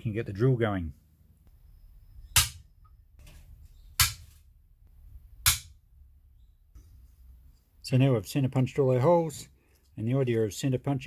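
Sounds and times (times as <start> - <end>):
hammer striking center punch: 2.3 - 2.6, 4.0 - 4.3, 5.4 - 5.8.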